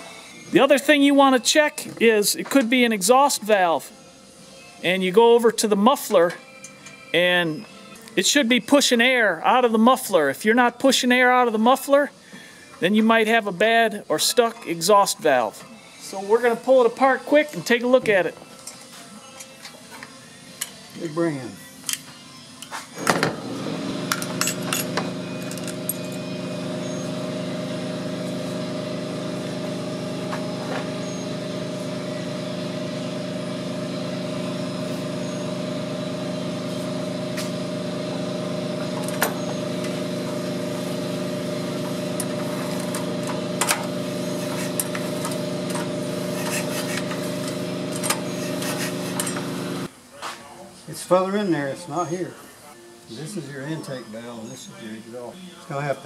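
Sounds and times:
engine running steadily: 0:23.3 - 0:49.9.

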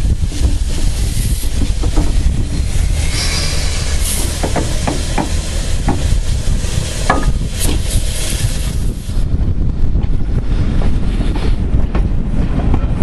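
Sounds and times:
steam hissing: 0:00.0 - 0:09.3
steam train rumble: 0:00.0 - 0:13.0
wind buffeting: 0:00.0 - 0:13.0
brief squeal: 0:03.0 - 0:04.3.

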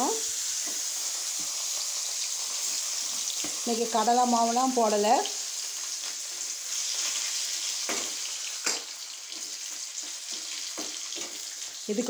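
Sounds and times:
food sizzling in hot oil: 0:00.0 - 0:12.0.

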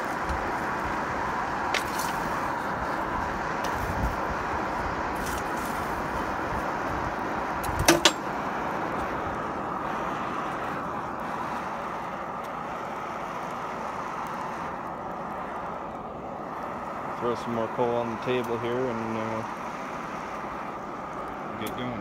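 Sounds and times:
fire flaming up: 0:00.0 - 0:22.0
sharp metal clanks: 0:07.8 - 0:08.3.

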